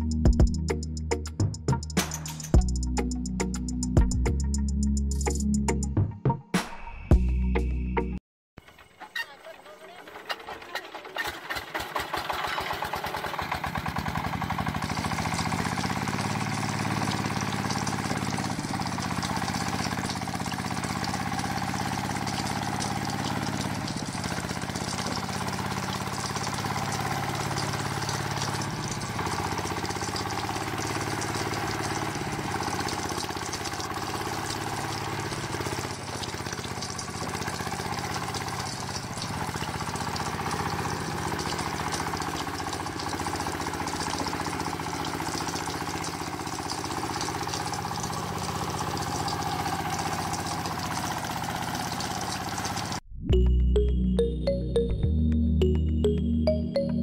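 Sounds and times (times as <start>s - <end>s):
small diesel engine chugging: 8.6s - 53.0s.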